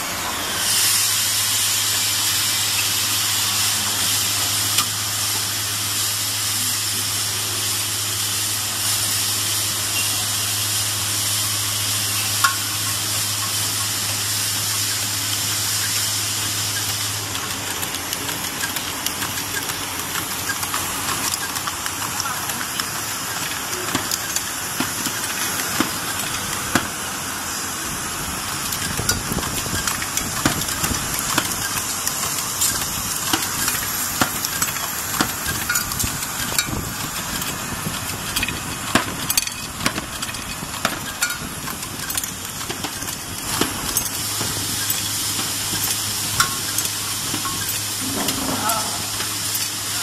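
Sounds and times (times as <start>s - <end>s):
steady mechanical hiss: 0.0s - 50.0s
machine clatter of clicks and taps: 12.4s - 27.0s, 28.6s - 49.8s.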